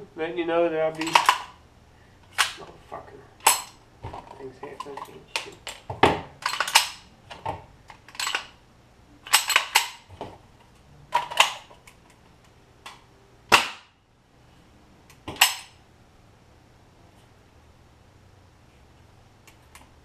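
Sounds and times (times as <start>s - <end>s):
rifle mechanism clacking: 1.0s - 1.5s, 6.4s - 7.0s.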